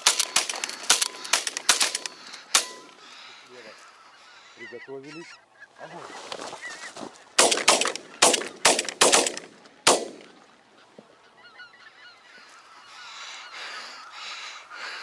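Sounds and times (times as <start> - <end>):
shotgun shots: 0.0 - 2.9, 7.4 - 10.3
geese calling: 0.0 - 15.0.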